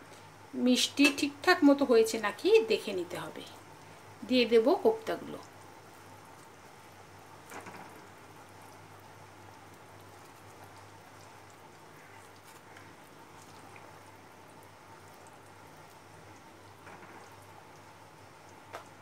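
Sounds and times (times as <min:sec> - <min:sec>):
low steady hum: 0:00.0 - 0:19.0
gravy bubbling with small pops: 0:04.8 - 0:19.0.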